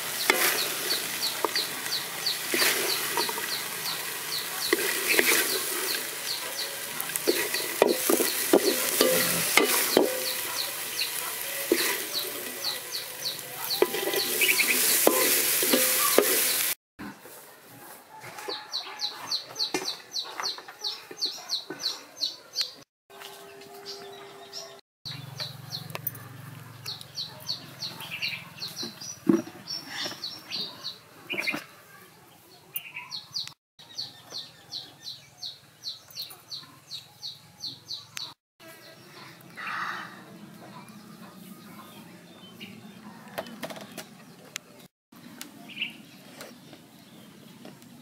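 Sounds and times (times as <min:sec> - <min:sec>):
spatula scraping corn in wok: 0:00.0 - 0:16.8
birds chirping: 0:00.0 - 0:17.2, 0:18.5 - 0:48.0.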